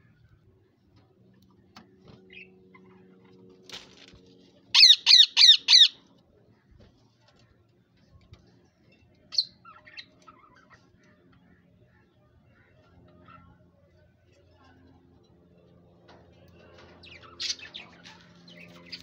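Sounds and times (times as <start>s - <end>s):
parakeet squawking: 4.8s - 6.0s.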